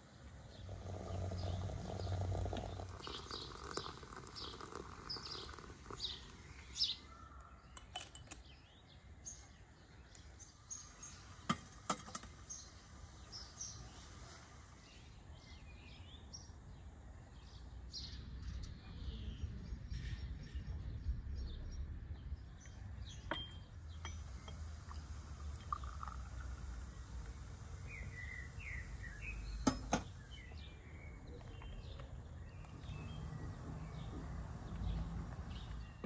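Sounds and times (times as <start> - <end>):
birds chirping: 0.0 - 36.0
tea pouring into glass: 0.6 - 7.1, 23.9 - 29.9
glass clinking: 7.7 - 8.4, 23.3 - 26.6, 29.6 - 30.1.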